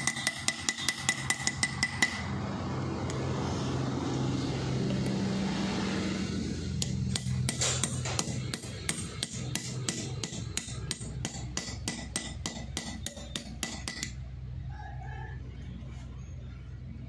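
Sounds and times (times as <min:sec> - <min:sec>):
low engine hum: 0:02.2 - 0:08.6.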